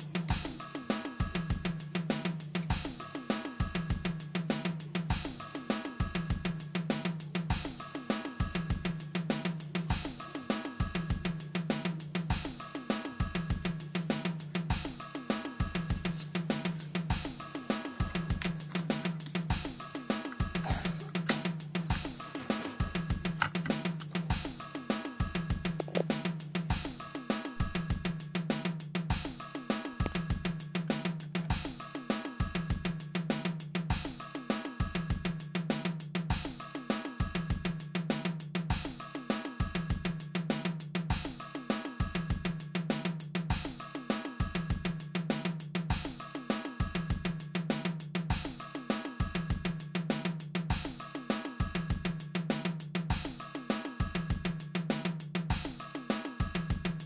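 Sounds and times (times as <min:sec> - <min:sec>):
drum-kit beat: 0:00.0 - 0:57.0
bass line: 0:27.6 - 0:28.0.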